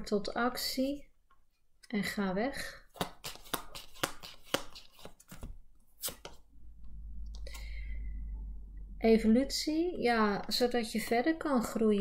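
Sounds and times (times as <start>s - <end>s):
cards shuffling: 2.9s - 6.4s
low rumble: 6.7s - 9.6s.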